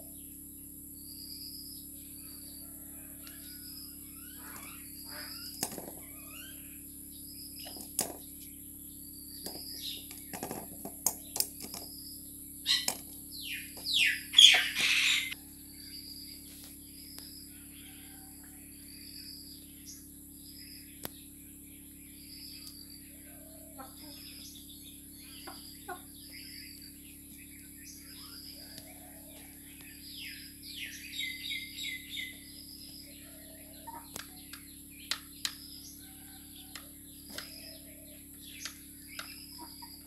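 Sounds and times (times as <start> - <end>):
loud falling bird calls: 1.9 - 40.0
chickens pecking taps: 5.6 - 6.0, 7.6 - 8.2, 9.4 - 11.9, 36.7 - 37.5.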